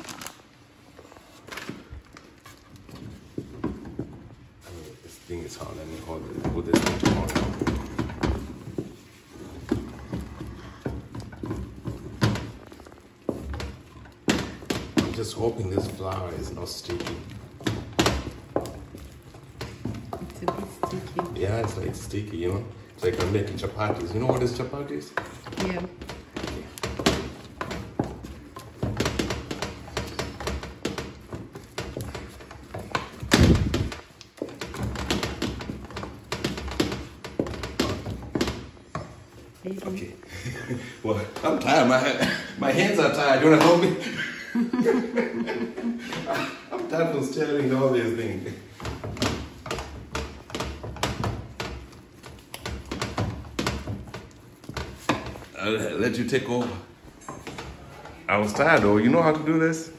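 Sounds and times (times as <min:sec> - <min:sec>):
wooden stick stirring thick dough: 0:00.0 - 0:45.3, 0:46.0 - 0:59.9
stick knocking against metal pot: 0:13.3 - 0:39.2.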